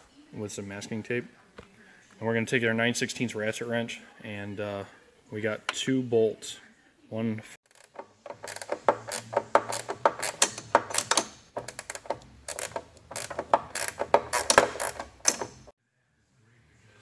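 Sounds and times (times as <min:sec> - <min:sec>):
ratcheting wrench clicking: 0:07.7 - 0:15.7.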